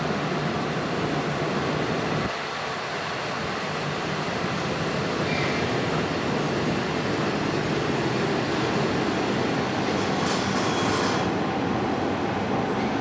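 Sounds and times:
electric train motors and wheels: 4.6 - 11.8.

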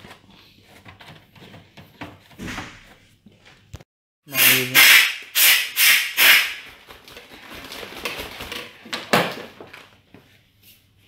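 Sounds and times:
plastic packet crinkling: 6.8 - 10.0.

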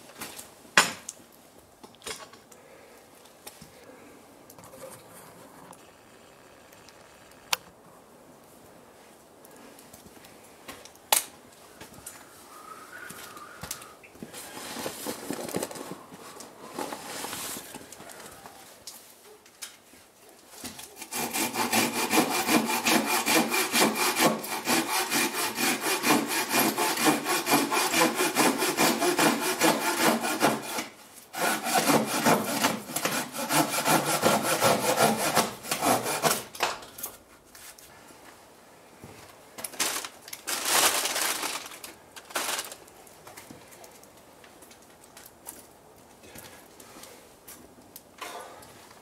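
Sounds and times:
hand saw cutting wood: 20.8 - 36.6.

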